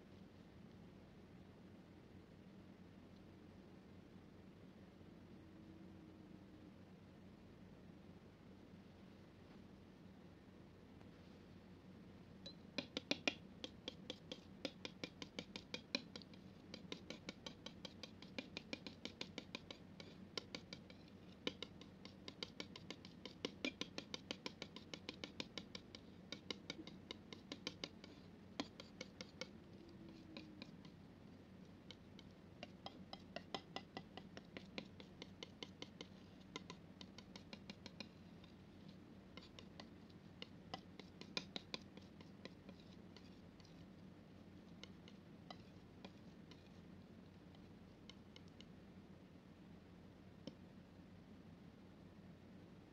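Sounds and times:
palette knife scraping wet paint: 12.8s - 48.6s.

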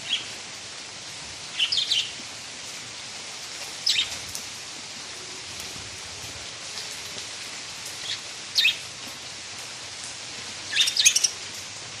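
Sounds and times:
rain hissing: 0.0s - 12.0s
budgerigars chirping: 10.7s - 11.3s.

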